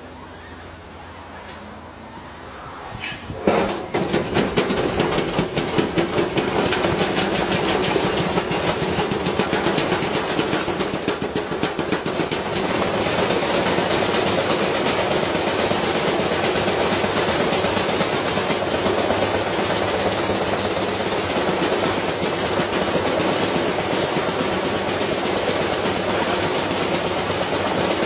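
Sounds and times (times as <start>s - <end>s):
washing machine spinning up: 0.0s - 28.0s
unbalanced washing machine banging: 3.3s - 28.0s.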